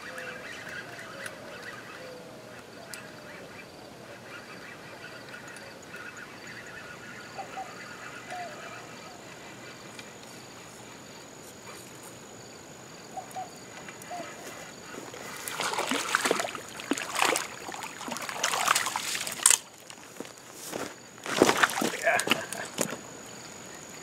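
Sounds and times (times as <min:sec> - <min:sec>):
fish splashing at surface: 0:15.1 - 0:20.1.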